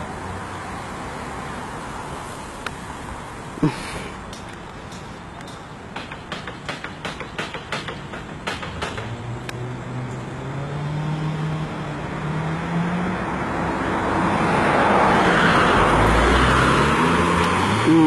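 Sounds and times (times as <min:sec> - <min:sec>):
road traffic: 0:00.0 - 0:18.0
car passing close by: 0:09.1 - 0:18.0.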